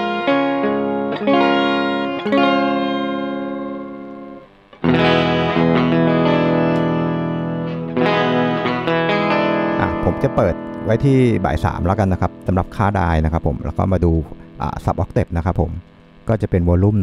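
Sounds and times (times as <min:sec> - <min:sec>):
electric guitar chords: 0:00.0 - 0:17.0.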